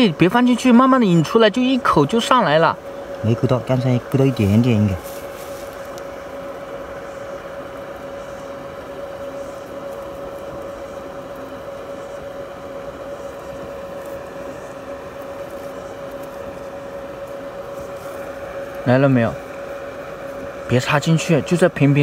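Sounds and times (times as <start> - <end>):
steady machine hum: 0.0 - 22.0.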